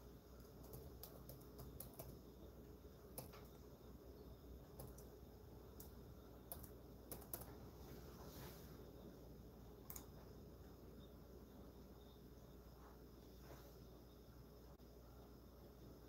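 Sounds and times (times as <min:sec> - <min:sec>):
faint clicks: 0:09.8 - 0:10.1.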